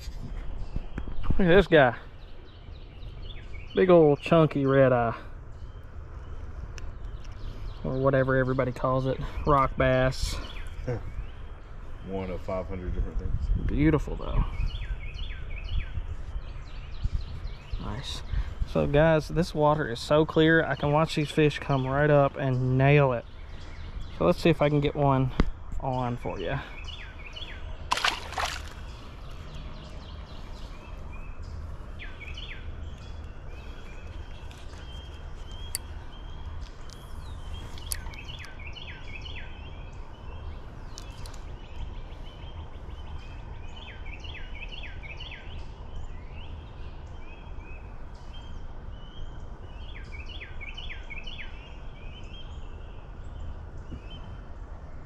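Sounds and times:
small bird chirping: 0:25.9 - 0:54.5.

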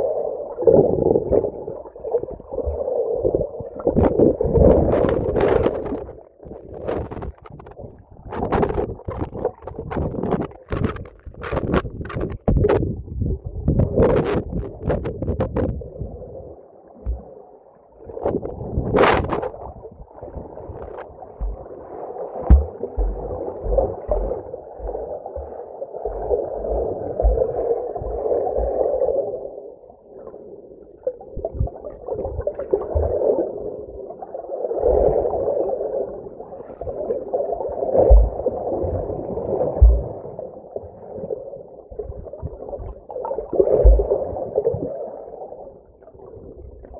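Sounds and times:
water splashes: 0:00.0 - 0:12.8, 0:18.0 - 0:29.4, 0:41.9 - 0:46.9
muffled underwater water gurgling: 0:00.0 - 0:46.9.

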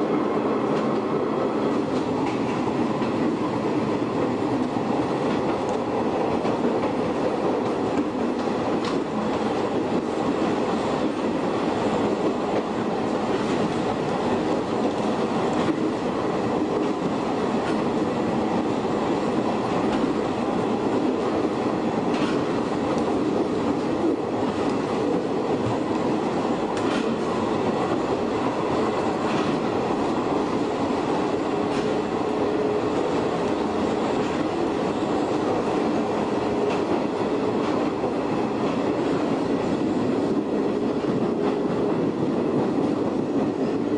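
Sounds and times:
rail joint clicks: 0:00.0 - 0:43.9
train motor and wheel drone: 0:00.0 - 0:43.9.

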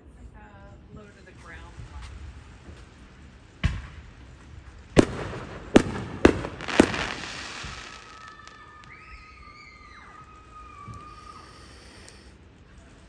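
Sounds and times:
fireworks exploding: 0:00.3 - 0:13.0
echoing rumble: 0:01.5 - 0:10.7.

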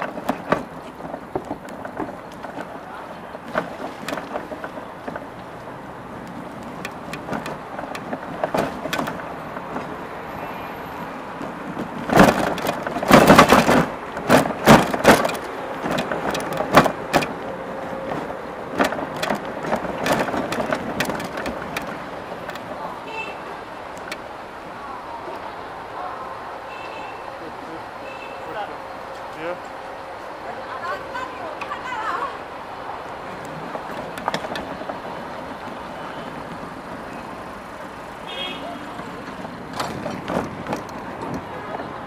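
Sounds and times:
sharp knocks and rattles: 0:00.0 - 0:05.6, 0:06.2 - 0:10.0, 0:11.3 - 0:22.9, 0:33.5 - 0:37.2, 0:38.9 - 0:41.8
street traffic: 0:00.0 - 0:42.0.

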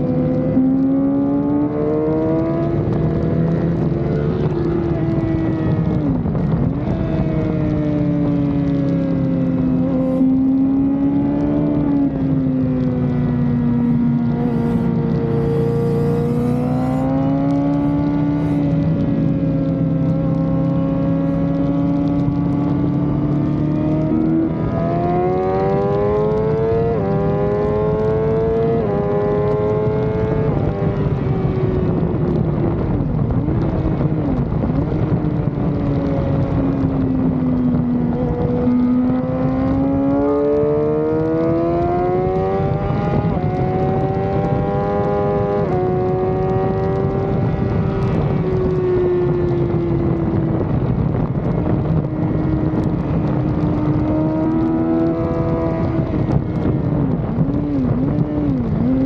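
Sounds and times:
wind rush: 0:00.0 - 0:59.0
sport bike engine revving: 0:13.7 - 0:18.8.

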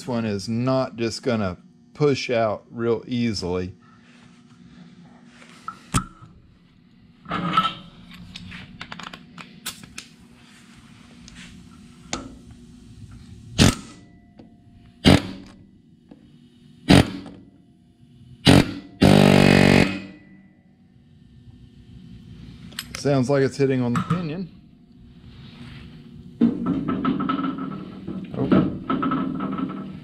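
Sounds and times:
pneumatic air hammer on steel: 0:13.6 - 0:14.0, 0:15.0 - 0:15.6, 0:16.8 - 0:17.4, 0:18.4 - 0:20.4.

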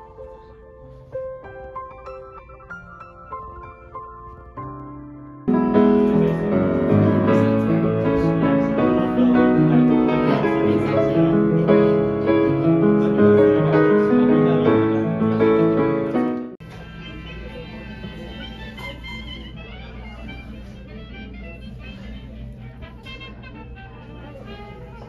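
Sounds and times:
grand piano playing: 0:00.0 - 0:16.6.

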